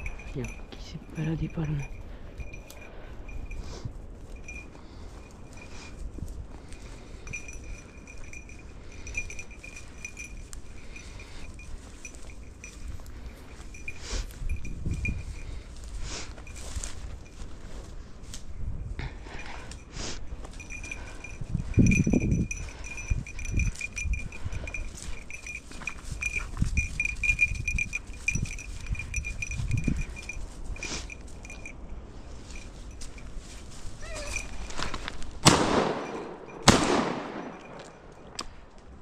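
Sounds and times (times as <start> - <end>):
shotgun shots: 35.4 - 37.6.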